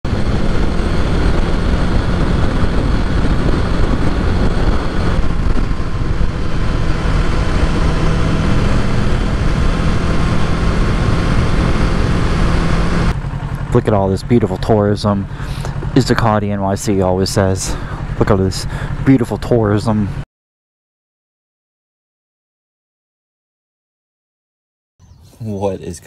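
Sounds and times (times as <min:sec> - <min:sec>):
motorcycle engine running: 0:00.0 - 0:20.2
wind rush over microphone: 0:00.1 - 0:13.4.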